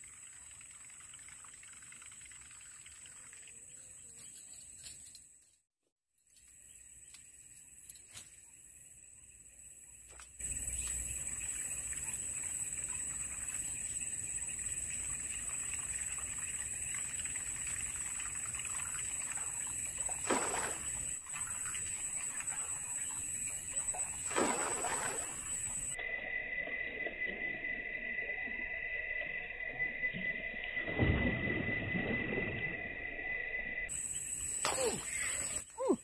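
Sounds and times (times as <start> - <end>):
lure churning water surface: 18.6 - 26.0
fish striking with heavy splash: 20.1 - 20.9, 24.2 - 25.4.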